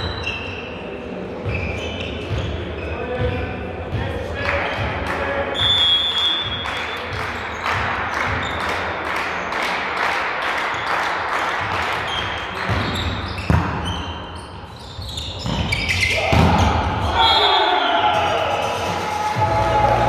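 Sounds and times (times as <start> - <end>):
crowd noise: 0.0 - 20.0.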